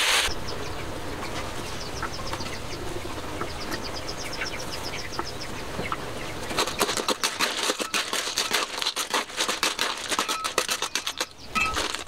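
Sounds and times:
bird chirping: 0.3 - 7.9, 10.2 - 12.0
shells clattering against pan: 6.8 - 12.0.

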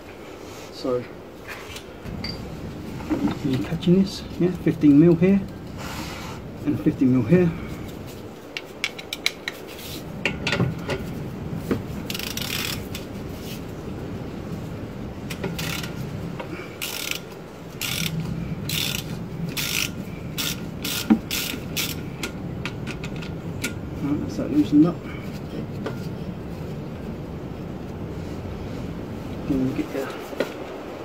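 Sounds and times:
socket ratchet clicking: 12.1 - 13.1, 16.8 - 23.4.

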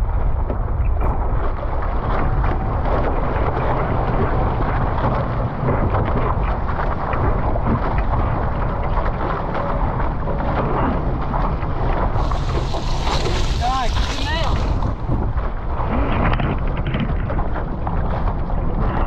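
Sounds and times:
wind buffeting microphone: 0.0 - 19.0
water rushing and splashing: 0.7 - 19.0.

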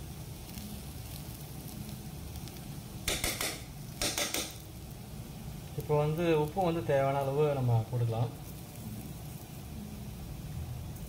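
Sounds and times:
food frying in oil: 0.0 - 11.0.

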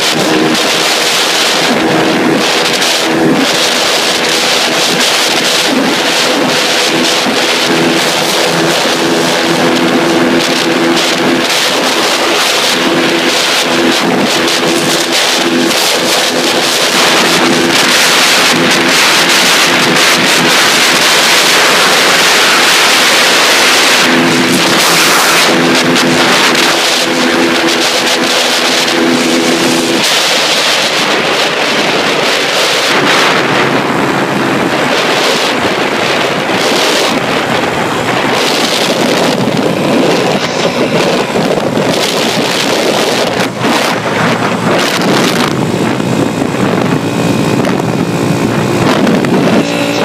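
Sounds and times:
moped engine running hard: 0.0 - 50.0
wind buffeting microphone: 0.0 - 50.0.

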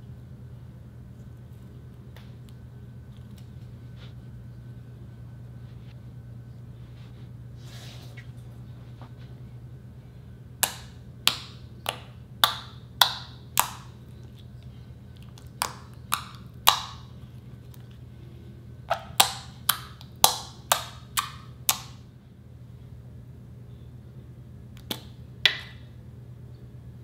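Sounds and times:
wet slime popping: 10.6 - 14.5, 15.2 - 17.1.

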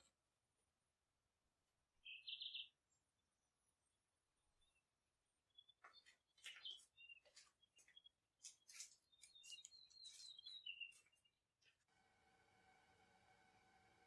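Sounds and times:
bird chirps: 2.0 - 3.3, 5.5 - 11.4.

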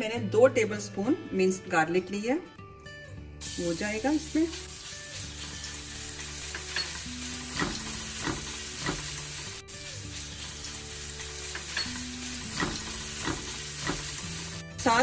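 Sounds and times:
garlic sizzling in hot oil: 3.4 - 15.0.

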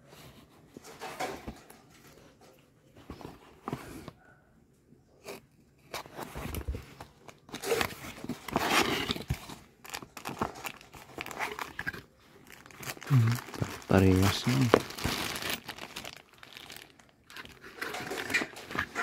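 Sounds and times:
cardboard tearing and scraping: 5.9 - 19.0.

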